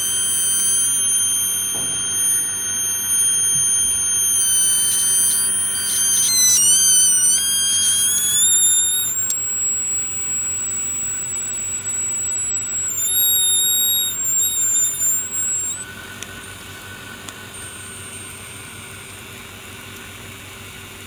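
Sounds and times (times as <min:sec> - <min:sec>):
plastic card squealing through adhesive: 0:00.0 - 0:15.8
low machine hum: 0:00.0 - 0:21.0.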